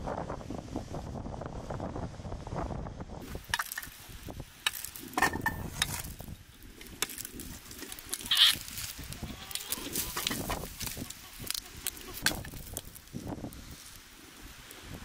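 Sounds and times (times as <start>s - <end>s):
twig fire crackling: 3.2s - 15.0s.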